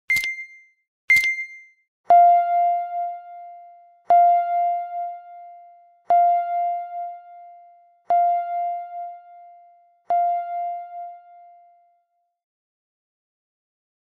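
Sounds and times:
bell-like timer chime: 0.1 - 12.2.

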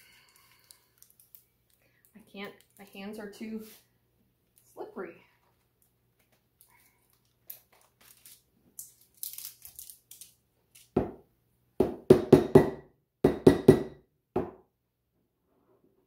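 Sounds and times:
crinkly rustle: 5.5 - 10.3.

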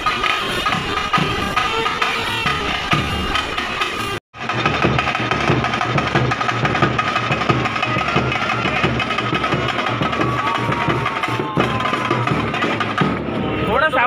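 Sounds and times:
drums beating: 0.0 - 14.0.

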